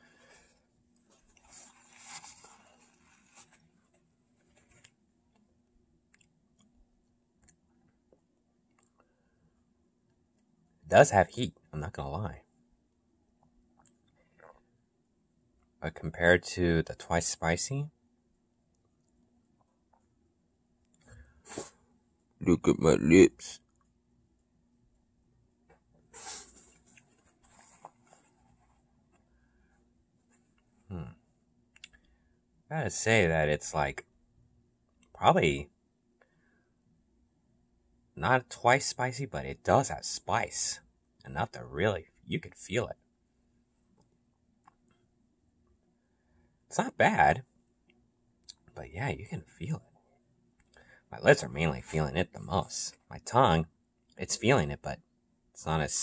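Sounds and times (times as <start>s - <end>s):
paper towel rustling: 0.3s - 4.9s, 26.1s - 28.9s
quiet chewing: 6.1s - 6.8s.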